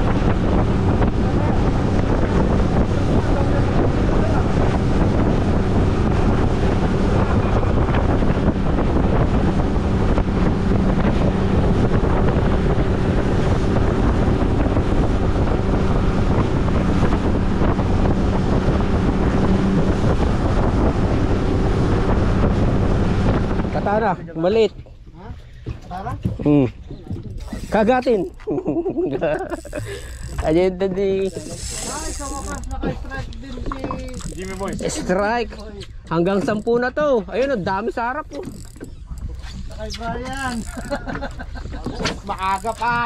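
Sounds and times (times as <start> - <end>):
water rushing past hull: 0.0 - 24.8, 29.3 - 43.0
boat engine droning: 0.0 - 43.0
wind buffeting microphone: 0.0 - 43.0.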